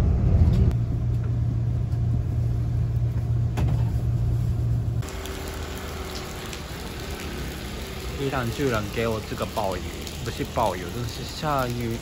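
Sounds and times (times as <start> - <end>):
train rumble inside carriage: 0.0 - 5.0.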